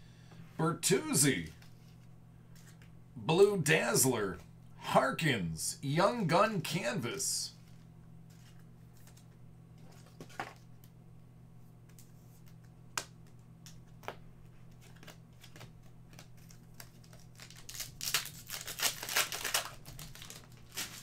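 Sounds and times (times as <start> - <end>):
wrapper tearing and crinkling: 14.8 - 21.0.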